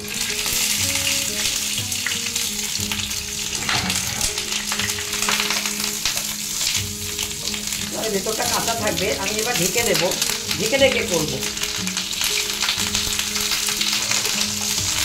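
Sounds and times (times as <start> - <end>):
food sizzling in oil: 0.0 - 15.0
wooden spatula scraping pan: 3.5 - 4.6.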